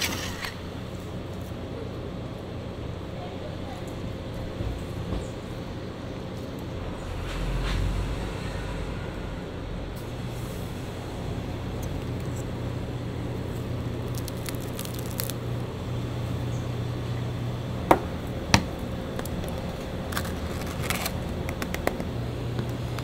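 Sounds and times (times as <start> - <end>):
steady low hum: 0.0 - 23.0
bread crackling and rustling: 11.9 - 16.3, 19.1 - 23.0.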